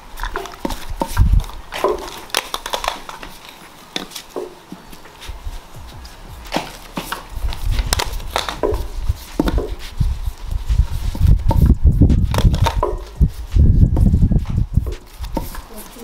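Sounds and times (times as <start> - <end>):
cardboard tubes knocking on wood: 0.3 - 3.2, 5.8 - 10.0, 11.1 - 15.6
low thuds: 5.3 - 15.6.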